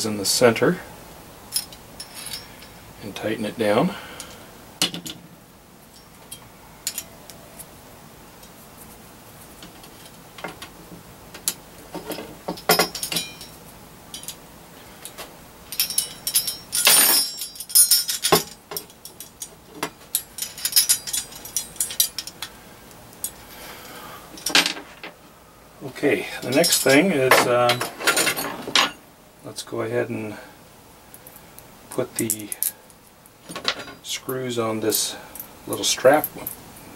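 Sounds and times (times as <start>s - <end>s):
small metal hardware clinking: 1.5s - 2.8s, 5.9s - 7.7s, 11.4s - 14.4s, 15.0s - 23.4s, 24.4s - 25.1s, 26.4s - 29.0s.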